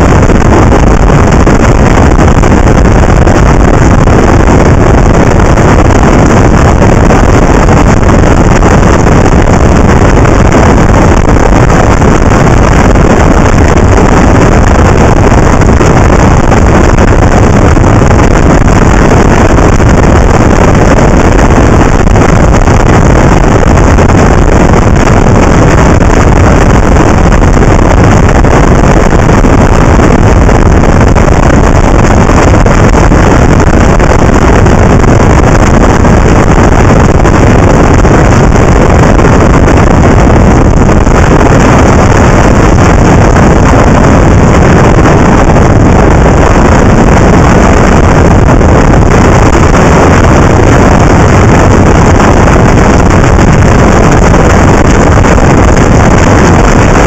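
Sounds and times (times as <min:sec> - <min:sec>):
wind rushing on microphone: 0:00.0 - 0:57.0.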